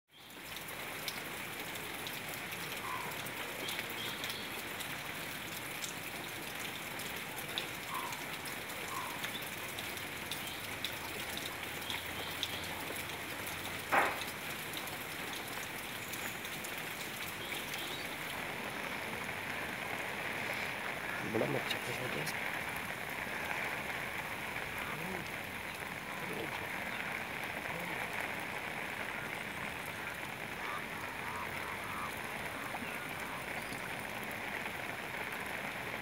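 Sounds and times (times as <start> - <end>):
light rain on water: 0.1 - 36.0
sharp knock: 13.9 - 14.3.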